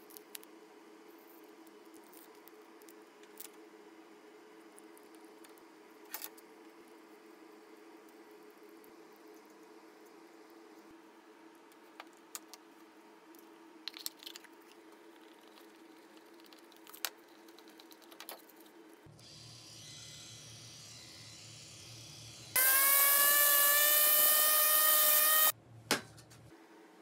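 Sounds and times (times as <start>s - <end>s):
quiet steady hum: 0.0s - 19.7s
electric sander motor whine: 19.3s - 25.5s.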